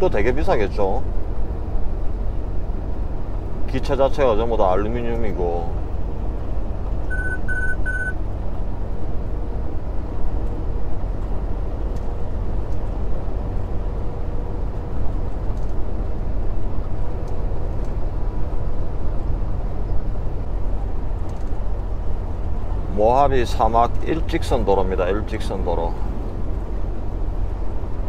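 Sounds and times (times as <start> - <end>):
truck diesel engine rumble: 0.0 - 28.0
short high beeps: 7.1 - 8.2.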